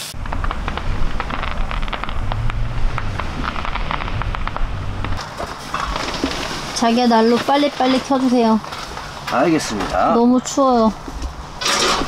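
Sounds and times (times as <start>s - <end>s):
distant firecrackers popping: 0.0s - 9.3s
steady low rumble: 0.0s - 11.6s.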